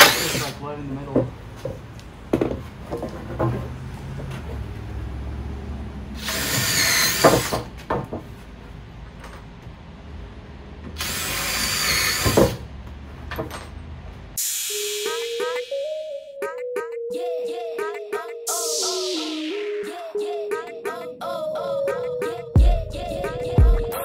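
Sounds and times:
impact driver whining: 0:00.0 - 0:00.6, 0:06.2 - 0:07.8, 0:10.9 - 0:12.6.

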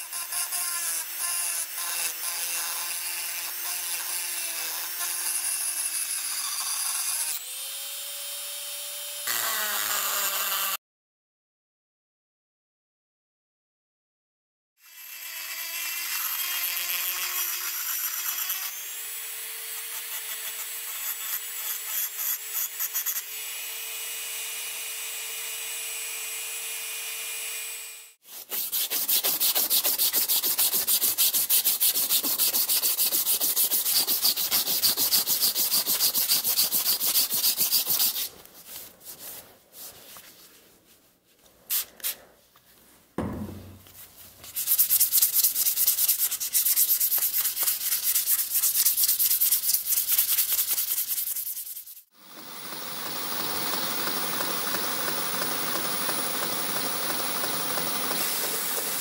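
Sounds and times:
rotary tool whining: 0:52.2 - 0:59.0.

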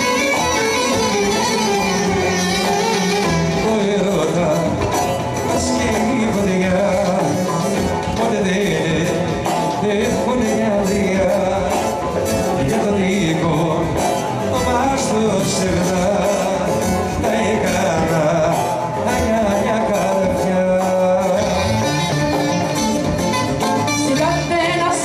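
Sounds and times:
violin melody: 0:00.0 - 0:04.9
person singing: 0:00.0 - 0:22.9
folk band playing dance music: 0:00.0 - 0:25.0.

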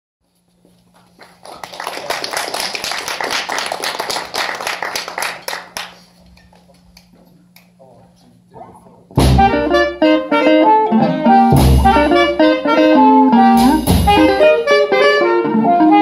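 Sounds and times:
small crowd applauding: 0:00.7 - 0:07.8.

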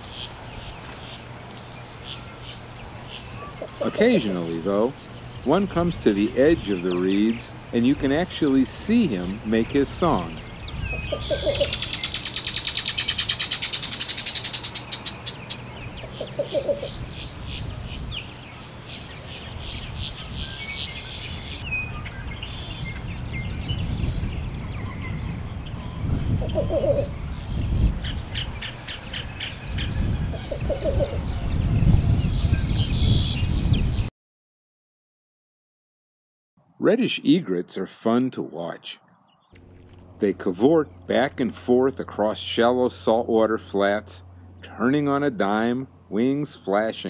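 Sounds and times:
bird low cooing song: 0:00.2 - 0:04.2, 0:10.3 - 0:34.1.

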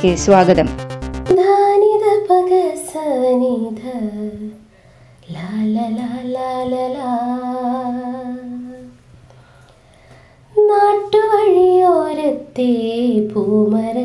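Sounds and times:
person singing wordless melody: 0:01.3 - 0:09.0
breath: 0:04.7 - 0:05.2, 0:09.2 - 0:10.5.

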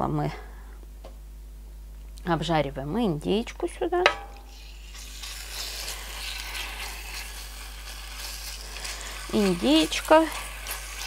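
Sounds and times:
spatula moving meat: 0:04.1 - 0:11.0
meat sizzling in hot oil: 0:04.2 - 0:11.0.

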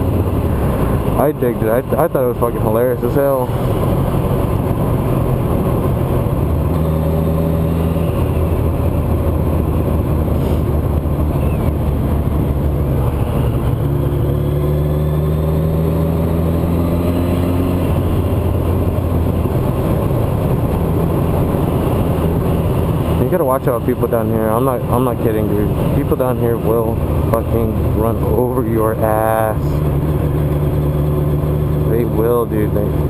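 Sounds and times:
motorcycle engine running: 0:00.0 - 0:33.0
wind rushing over microphone: 0:00.0 - 0:33.0.

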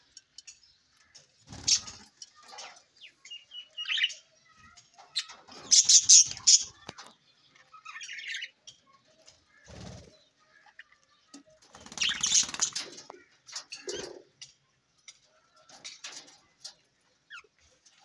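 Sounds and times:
wings fluttering: 0:01.4 - 0:02.7, 0:09.5 - 0:10.2, 0:11.6 - 0:14.1
budgerigars chirping: 0:05.2 - 0:06.8, 0:11.8 - 0:12.8.

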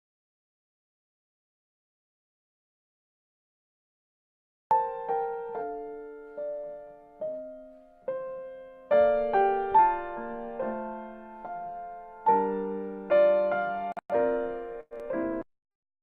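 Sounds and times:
slow piano melody: 0:04.7 - 0:15.5.

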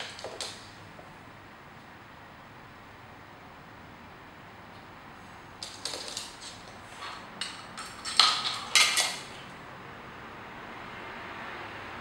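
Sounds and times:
plastic toys clattering on wooden floor: 0:05.6 - 0:09.4.

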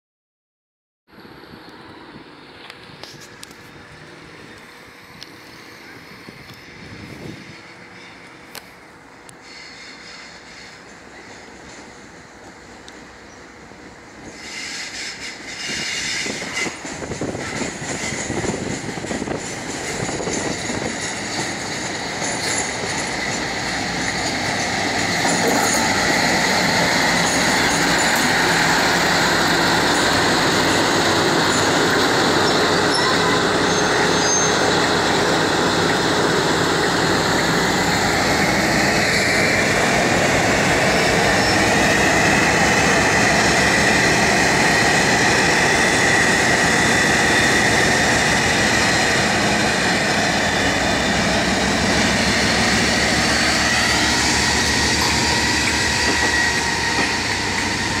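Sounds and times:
diesel locomotive engines: 0:01.1 - 0:58.0
wheels rumbling on rail: 0:01.1 - 0:58.0
wheels squealing on curved track: 0:14.2 - 0:21.4, 0:24.5 - 0:35.5, 0:40.9 - 0:58.0.

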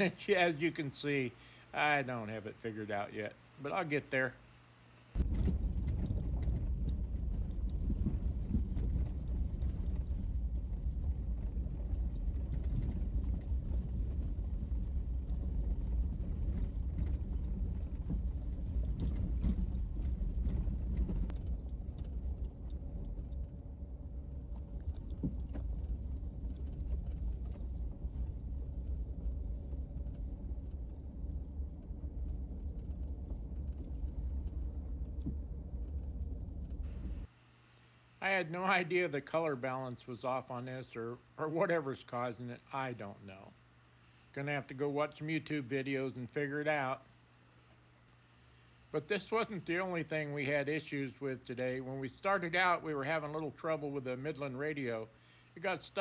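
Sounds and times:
knocks and rattles: 0:05.2 - 0:37.3
vehicle engine and road rumble: 0:05.2 - 0:37.3.

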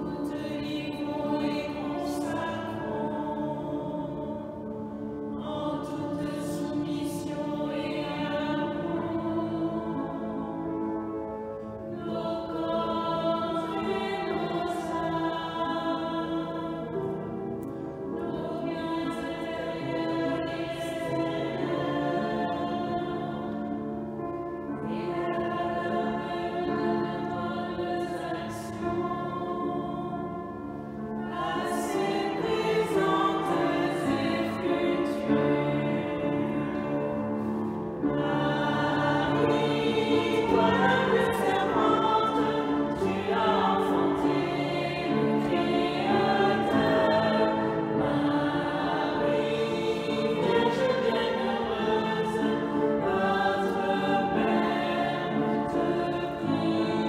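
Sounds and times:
group singing a hymn: 0:00.0 - 0:57.0.

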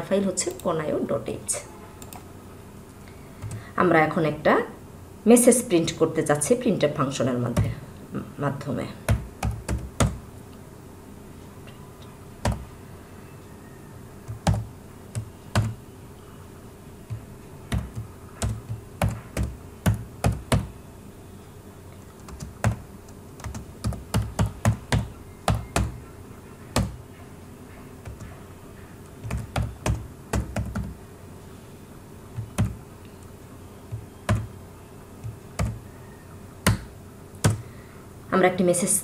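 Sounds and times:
computer keyboard typing: 0:02.0 - 0:02.3, 0:03.4 - 0:03.6, 0:09.0 - 0:10.3, 0:12.4 - 0:12.8, 0:14.2 - 0:15.8, 0:17.0 - 0:20.8, 0:22.0 - 0:26.1, 0:26.7 - 0:27.1, 0:28.0 - 0:31.0, 0:32.3 - 0:33.3, 0:33.9 - 0:34.6, 0:35.2 - 0:35.9, 0:36.6 - 0:37.6.

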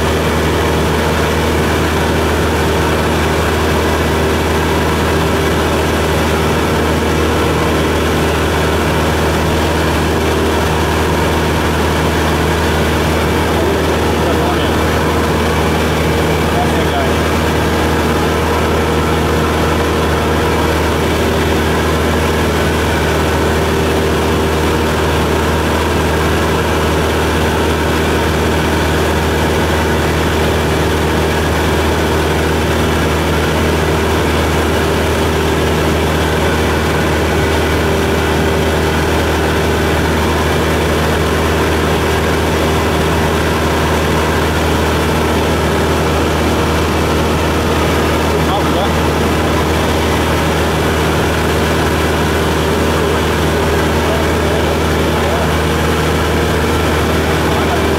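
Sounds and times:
airplane engine and propeller drone: 0:00.0 - 0:57.9.

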